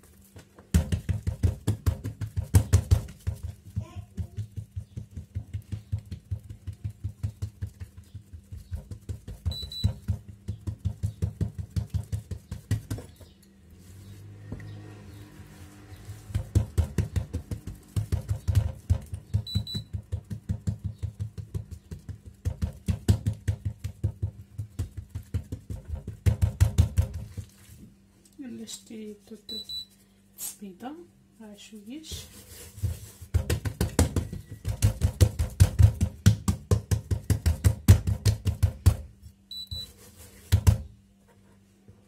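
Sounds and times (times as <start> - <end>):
hands slapping dough on countertop: 0.2 - 13.3, 16.1 - 27.9, 32.1 - 39.2, 40.4 - 40.9.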